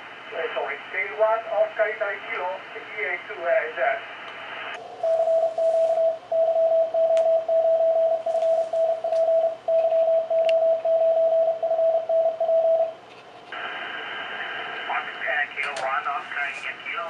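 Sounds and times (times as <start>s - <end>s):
morse code beeps: 5.0s - 13.0s.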